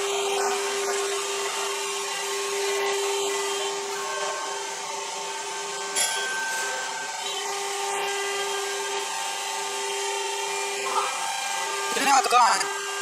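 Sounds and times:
router spindle cutting wood: 0:00.0 - 0:13.0.

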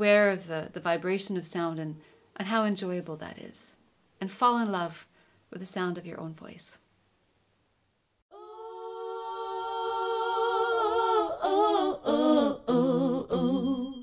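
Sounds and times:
person singing unaccompanied: 0:08.3 - 0:14.0.

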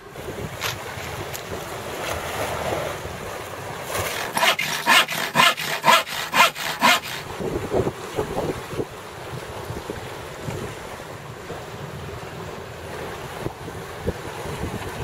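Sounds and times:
handsaw cutting wood: 0:03.9 - 0:07.4.

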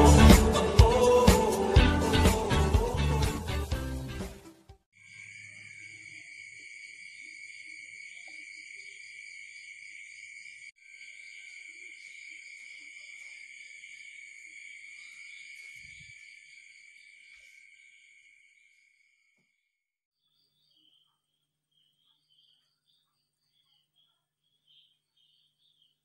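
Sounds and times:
high-pitched insect chorus: 0:05.0 - 0:19.0.

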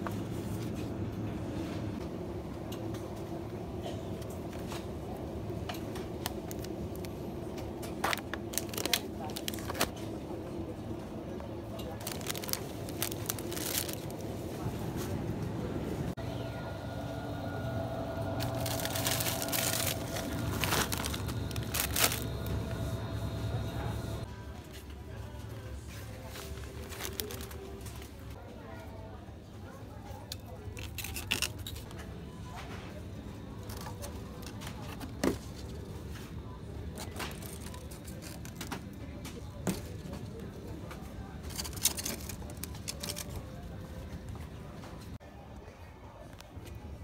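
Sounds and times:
low background hum: 0:00.0 - 0:47.0
plastic bag crinkling: 0:08.0 - 0:09.9, 0:12.0 - 0:14.4, 0:18.4 - 0:23.0, 0:26.2 - 0:28.3.

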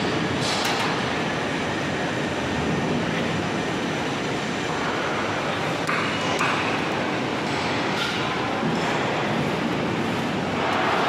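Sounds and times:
machinery rumble and hiss: 0:00.0 - 0:11.0.

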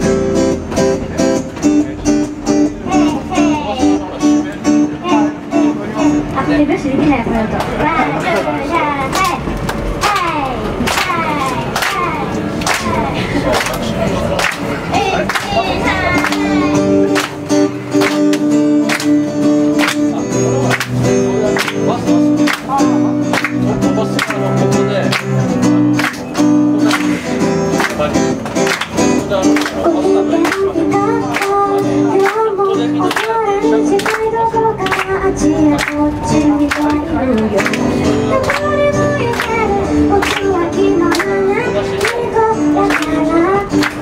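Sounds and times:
acoustic guitar strumming: 0:00.0 - 0:44.0
audience clapping in time: 0:07.6 - 0:44.0
woman singing: 0:29.8 - 0:44.0.

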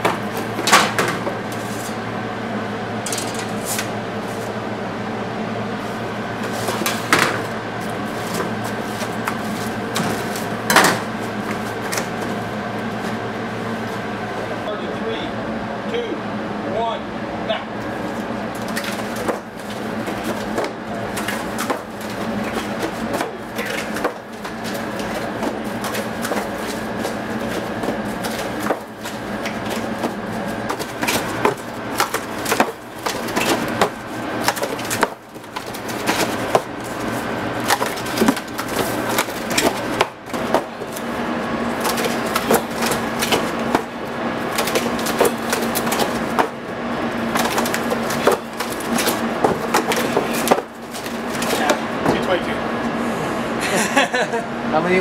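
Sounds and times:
cardboard boxes being folded: 0:06.4 - 0:13.2, 0:18.6 - 0:52.3.

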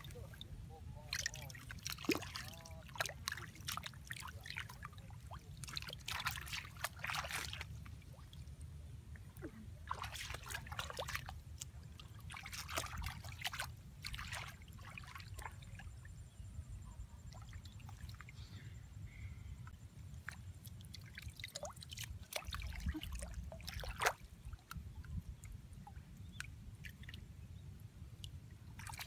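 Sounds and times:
water splashing and trickling: 0:00.0 - 0:29.0
steady low rumble: 0:07.5 - 0:20.9.

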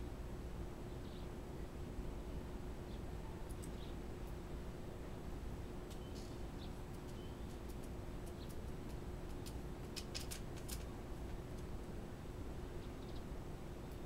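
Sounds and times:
low electrical hum: 0:00.0 - 0:14.0
faint clicks: 0:03.5 - 0:04.4.

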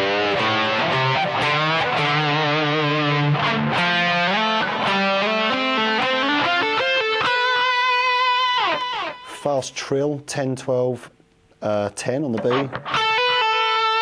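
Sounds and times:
overdriven electric guitar lead: 0:00.0 - 0:09.4, 0:12.4 - 0:14.0.

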